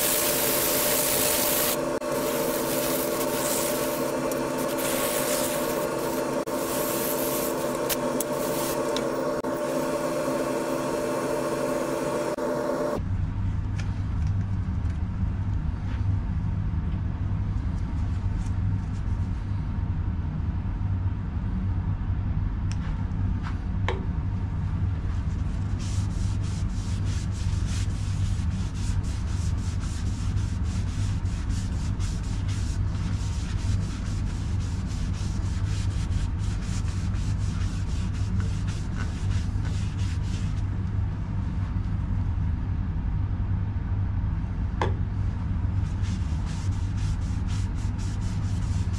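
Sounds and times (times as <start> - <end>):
paper towel rubbing on wood: 0.0 - 12.3, 25.0 - 40.8, 45.8 - 48.9
wood lathe humming: 0.0 - 13.0.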